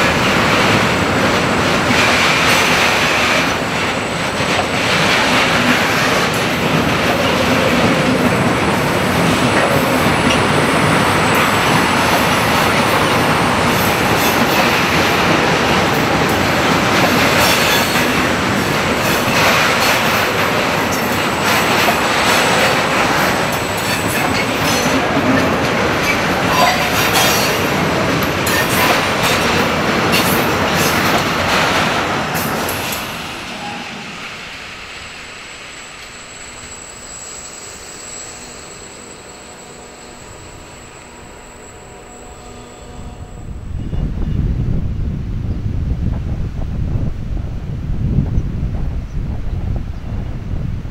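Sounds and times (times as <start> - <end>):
train wheels rumbling: 0.0 - 50.9
wheels clicking over rail joints: 11.3 - 33.1.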